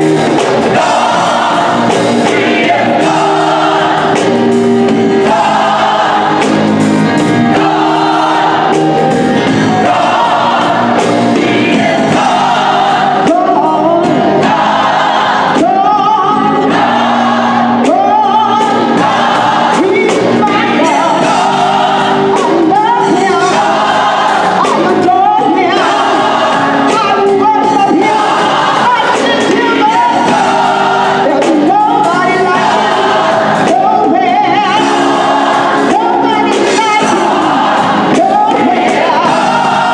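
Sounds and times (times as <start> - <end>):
gospel choir singing: 0.0 - 39.9
soloist singing into microphone: 7.5 - 16.9, 17.5 - 39.9.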